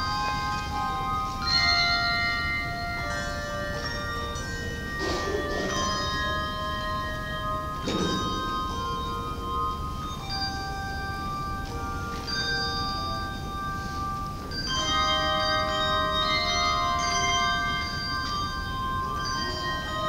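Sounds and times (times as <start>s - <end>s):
handbell choir ringing chords: 0.0s - 20.0s.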